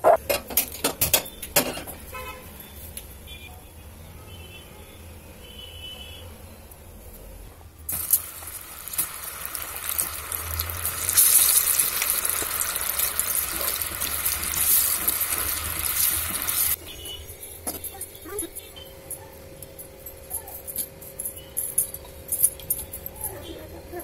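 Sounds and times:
water boiling hard in a pan: 7.9s - 16.8s.

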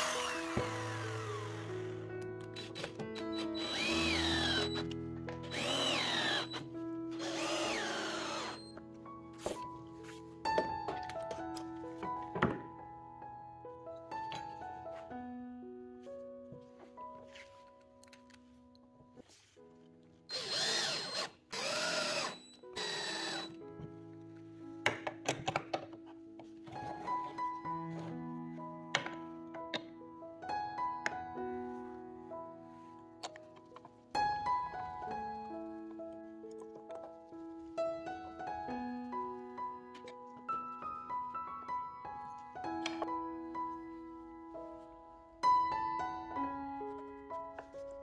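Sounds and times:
drill motor whine: 0.0s - 2.0s, 2.6s - 4.9s, 5.5s - 8.8s, 20.3s - 23.6s.

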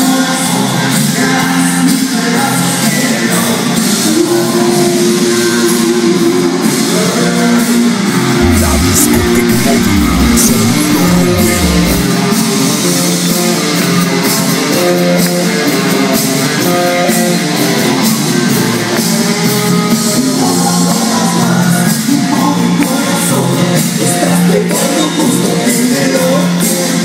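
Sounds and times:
loud dance music with guitar: 8.4s - 12.2s.

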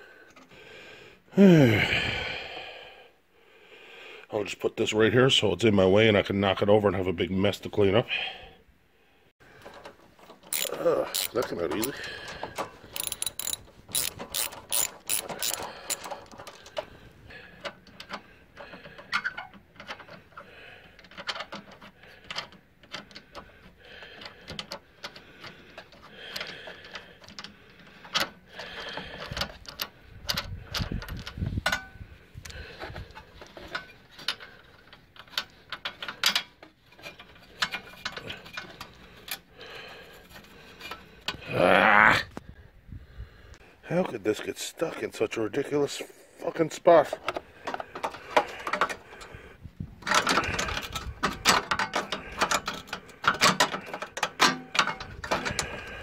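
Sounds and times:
hand ratchet clicking: 10.5s - 12.0s, 13.0s - 16.4s
socket clinking on metal: 13.0s - 16.1s.

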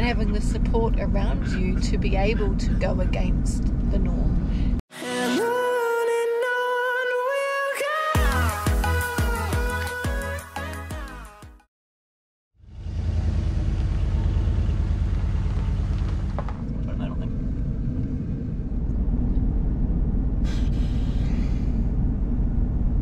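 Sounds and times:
van engine low rumble: 0.0s - 4.8s, 12.6s - 23.0s.

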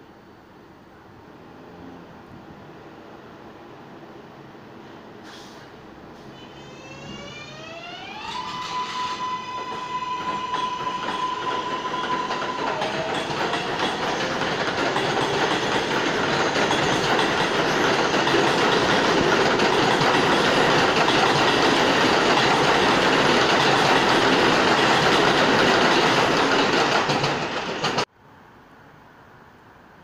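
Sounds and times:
train wheels rumbling on rails: 5.3s - 28.1s.

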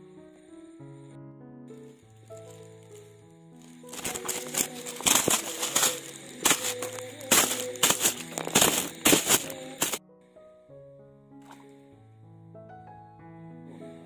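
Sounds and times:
background music: 1.7s - 14.0s
plastic bag crinkling: 2.2s - 10.0s.

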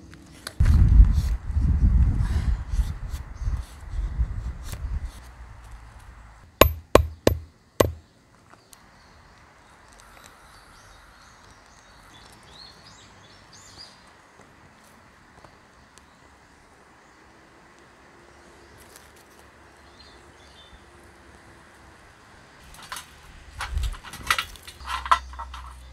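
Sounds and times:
sharp metallic knocks: 6.6s - 8.0s.

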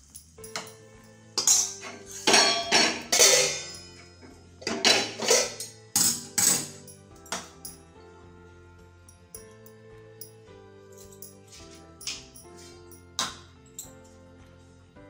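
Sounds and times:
metal spoon scraping a steel pan: 1.4s - 6.8s.

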